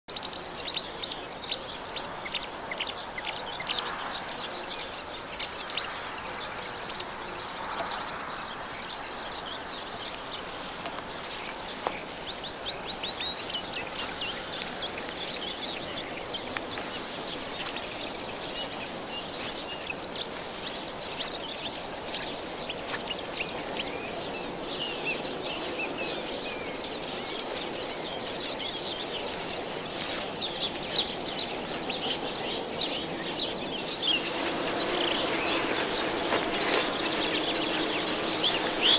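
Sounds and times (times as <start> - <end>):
songbirds chirping and singing: 0.1 - 38.9
steady outdoor hum: 0.1 - 38.9.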